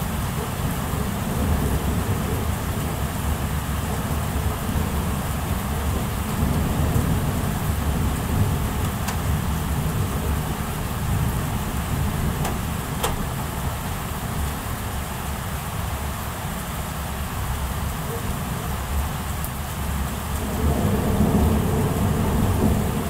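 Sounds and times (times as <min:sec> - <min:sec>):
thunder rumbling: 0:00.0 - 0:14.6, 0:19.8 - 0:23.0
rain falling steadily: 0:00.0 - 0:23.0.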